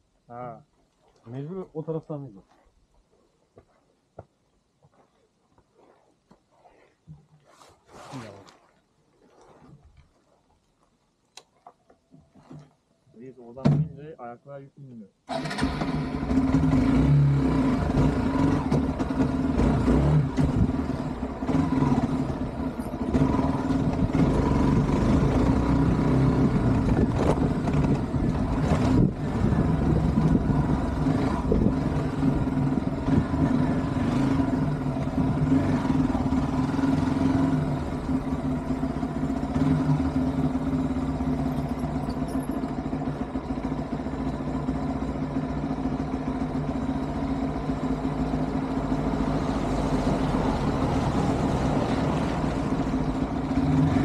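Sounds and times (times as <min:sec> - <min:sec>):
motorcycle engine running: 0:16.1 - 0:54.0.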